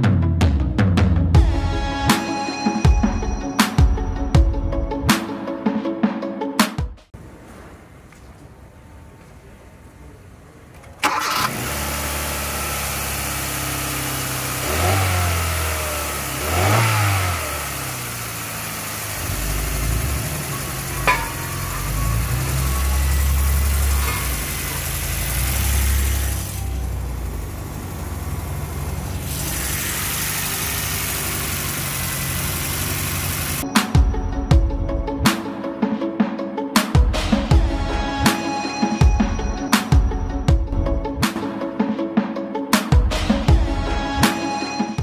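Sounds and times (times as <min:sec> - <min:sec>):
car engine starting and idling: 0:09.4 - 0:33.7.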